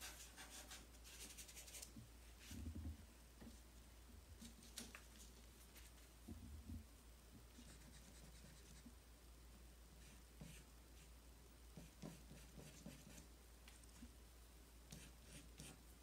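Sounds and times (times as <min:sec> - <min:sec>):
charcoal scratching on paper: 0:00.0 - 0:01.9, 0:11.8 - 0:13.2, 0:14.9 - 0:15.8.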